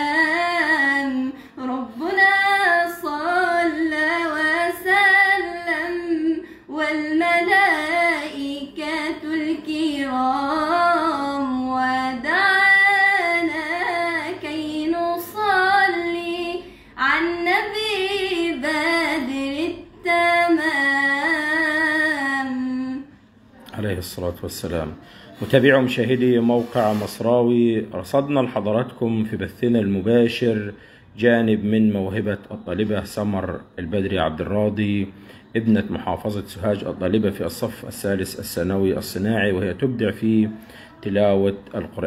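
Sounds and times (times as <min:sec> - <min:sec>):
woman chanting: 0:00.0 - 0:23.6.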